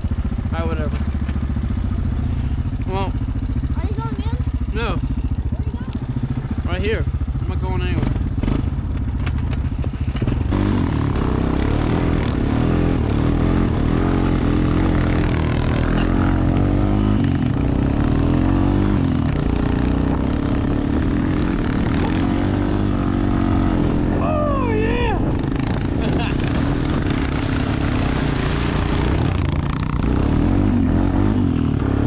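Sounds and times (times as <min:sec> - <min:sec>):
quad bike engine revving: 0:00.0 - 0:32.0.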